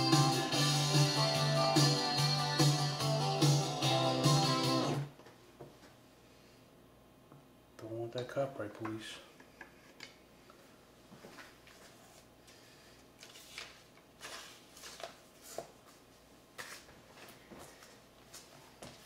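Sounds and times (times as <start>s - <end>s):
vinyl record handling rustles: 13.2s - 19.0s.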